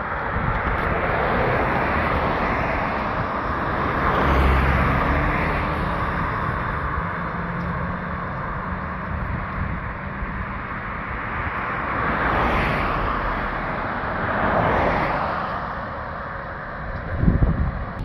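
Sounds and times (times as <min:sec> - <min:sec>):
car passing close: 0:00.0 - 0:18.0
road traffic going by: 0:00.0 - 0:18.0.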